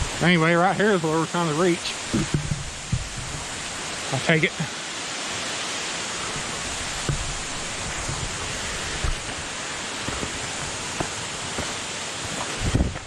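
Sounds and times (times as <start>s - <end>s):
waterfall rushing: 0.0s - 13.0s
footsteps on dirt trail: 6.3s - 13.0s.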